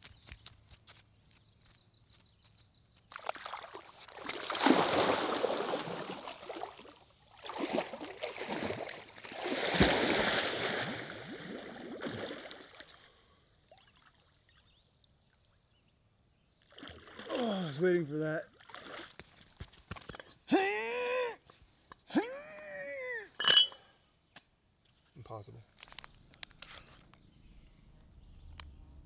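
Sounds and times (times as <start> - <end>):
person wading and swimming: 3.1 - 14.6, 16.6 - 17.8, 18.5 - 20.2
lake water splashing: 3.1 - 15.5, 16.6 - 19.6.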